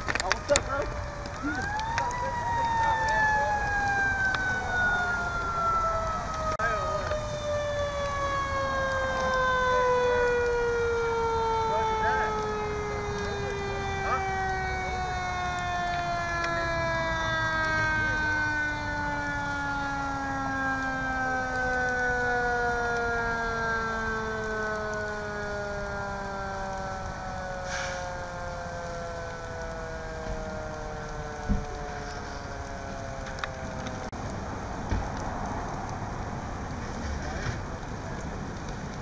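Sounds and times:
burning vehicle crackling: 0.0s - 39.0s
fire engine siren winding down: 0.0s - 39.0s
sharp pops from fire: 0.0s - 39.0s.

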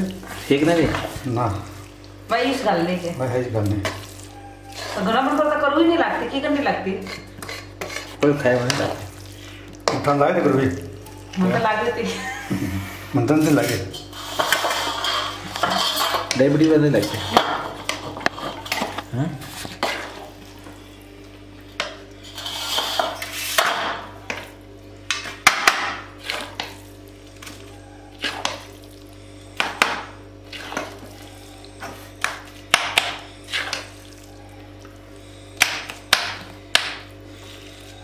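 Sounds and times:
steel spoon scraping steel bowl: 6.9s - 8.8s, 13.4s - 18.8s, 22.2s - 23.7s.

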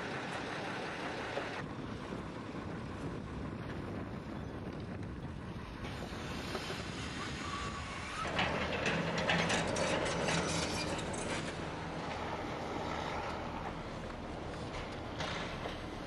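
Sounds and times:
steady rumbling: 0.0s - 16.0s
clattering and knocking: 8.3s - 11.8s.

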